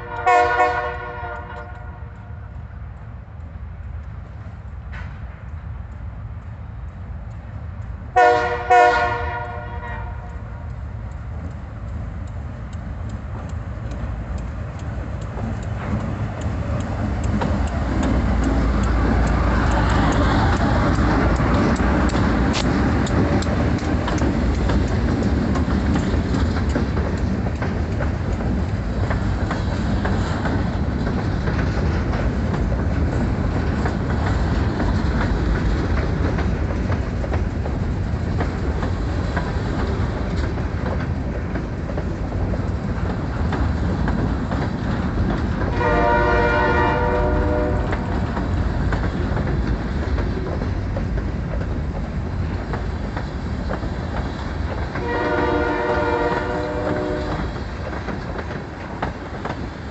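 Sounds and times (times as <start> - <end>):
locomotive horn: 0.0 - 2.4, 8.2 - 10.4, 45.7 - 48.1, 55.0 - 57.5
freight train wheels clattering: 0.0 - 59.9.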